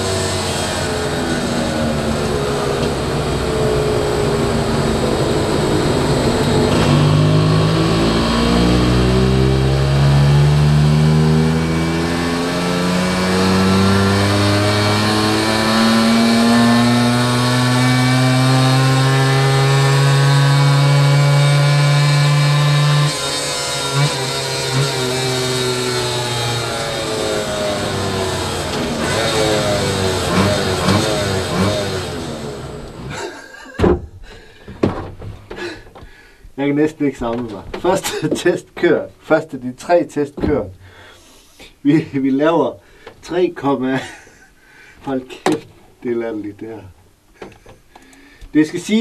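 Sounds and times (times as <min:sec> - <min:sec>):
two-stroke moped engine revving: 0:00.0 - 0:33.4.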